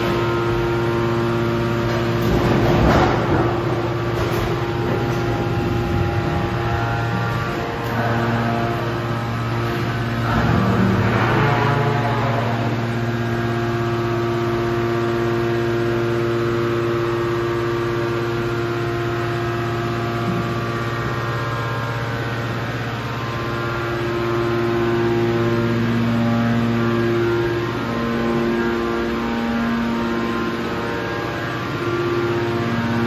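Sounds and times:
machine motors humming with whine: 0:00.0 - 0:33.0.

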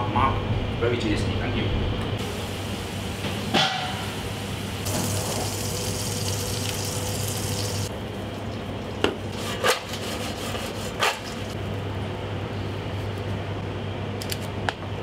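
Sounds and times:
fries sizzling in oil: 0:02.2 - 0:09.4
steady low hum: 0:10.1 - 0:15.0.

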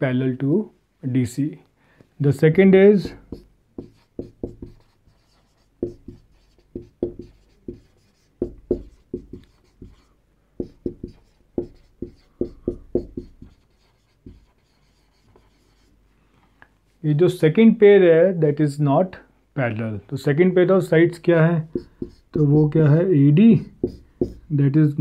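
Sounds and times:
marker writing on whiteboard: 0:03.0 - 0:16.0, 0:21.6 - 0:24.5.

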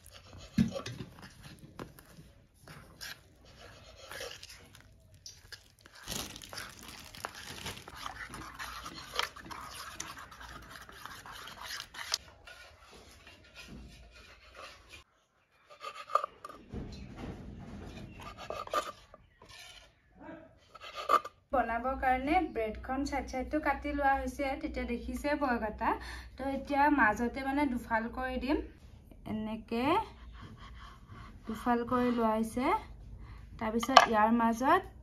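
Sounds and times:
metal spoon scraping steel bowl: 0:00.0 - 0:04.8, 0:07.8 - 0:16.7, 0:17.9 - 0:21.5.

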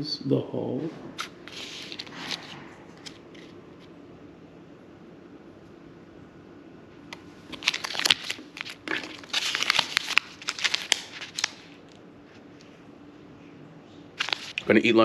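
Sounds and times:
foil pouch crinkling: 0:07.5 - 0:12.0, 0:14.2 - 0:14.7.

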